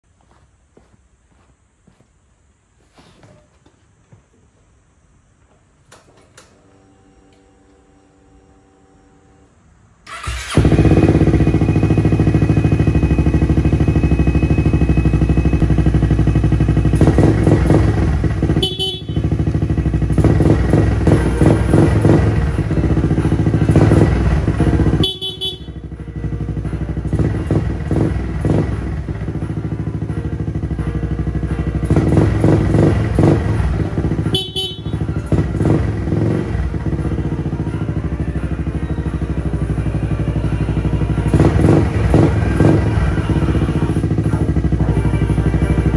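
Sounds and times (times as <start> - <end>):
scooter engine idling and revving: 10.1 - 45.9.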